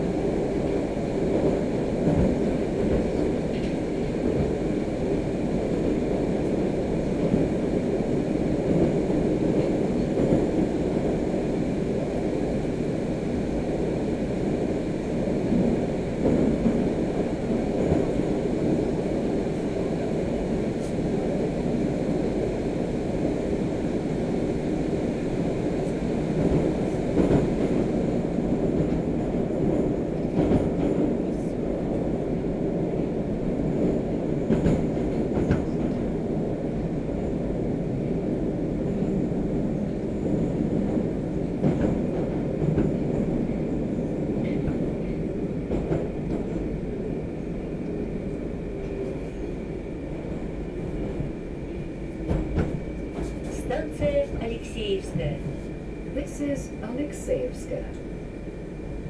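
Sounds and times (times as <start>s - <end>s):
train wheels rumbling on rails: 0.0s - 59.0s
clacks over rail joints: 52.2s - 54.6s.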